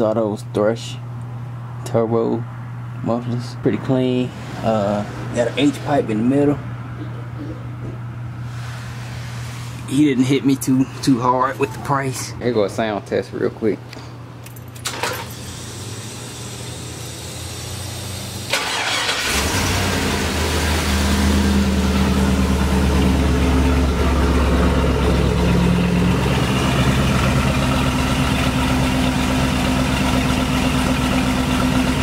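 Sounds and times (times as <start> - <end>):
engine starting and idling: 14.7 - 32.0.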